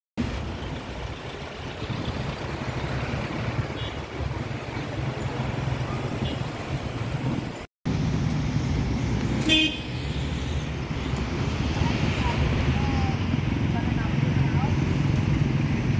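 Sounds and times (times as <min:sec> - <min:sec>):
road traffic passing: 0:00.2 - 0:15.9.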